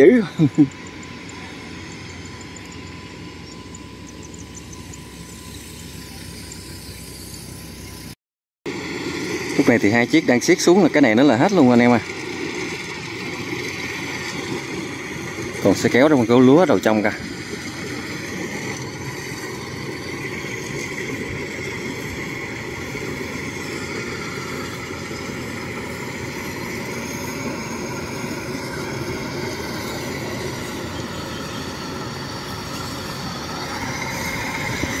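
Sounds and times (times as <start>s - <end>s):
combine harvesters running: 0.0s - 35.0s.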